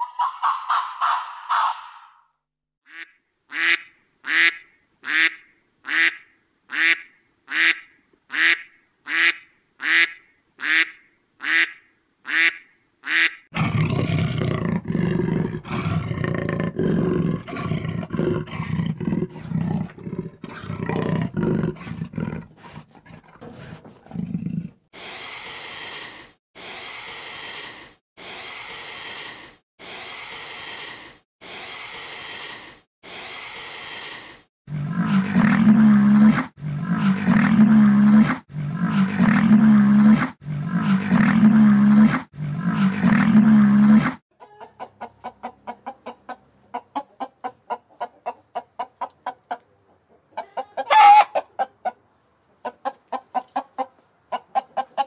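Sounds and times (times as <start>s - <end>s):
deep rough animal call: 13.6s - 24.9s, 34.7s - 44.2s
hissing breaths: 21.7s - 24.2s, 25.0s - 35.6s.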